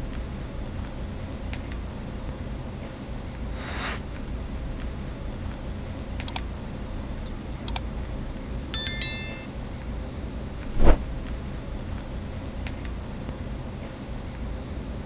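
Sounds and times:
short metallic ring: 8.8s - 9.5s.

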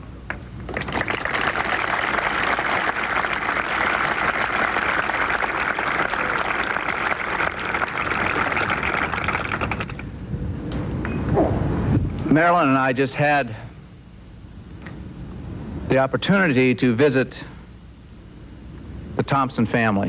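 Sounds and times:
crowd applauding: 0.7s - 10.0s.

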